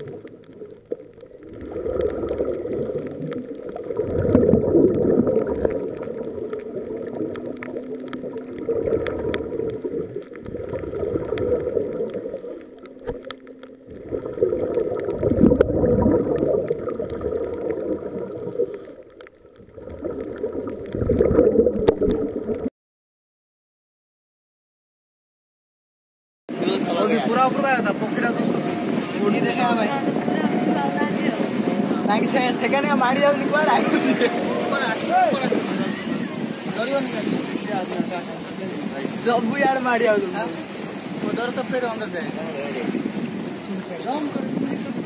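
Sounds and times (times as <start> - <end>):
scuba regulator bubbles underwater: 0.0 - 22.7.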